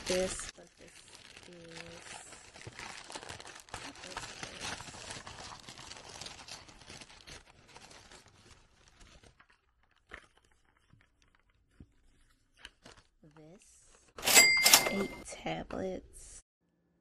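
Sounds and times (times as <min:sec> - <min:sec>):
paper and plastic bags rustling: 0:00.0 - 0:13.2.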